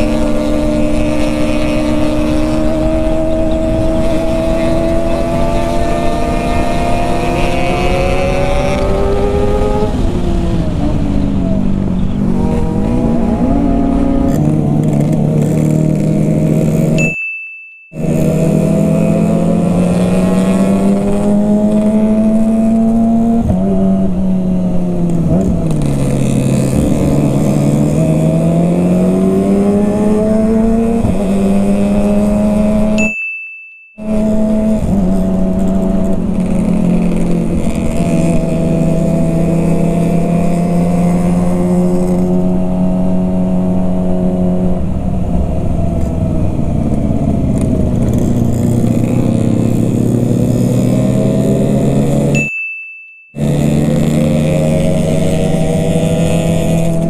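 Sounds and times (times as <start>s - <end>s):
motorcycle engine: 0.0s - 33.2s, 34.0s - 57.0s
short high beep: 17.0s - 18.2s, 33.0s - 34.1s, 52.4s - 53.4s.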